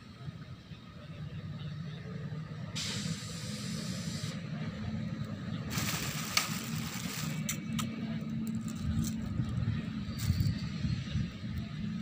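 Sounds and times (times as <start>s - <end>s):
bursts of hissing noise: 2.8s - 4.5s, 5.6s - 7.7s.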